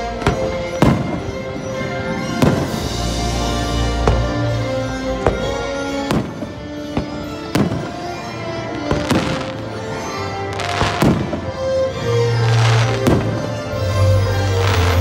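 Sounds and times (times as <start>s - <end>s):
fireworks crackling: 0.0s - 15.0s
music: 0.0s - 15.0s
fireworks bangs: 0.2s - 3.0s, 5.2s - 11.6s, 12.4s - 13.8s.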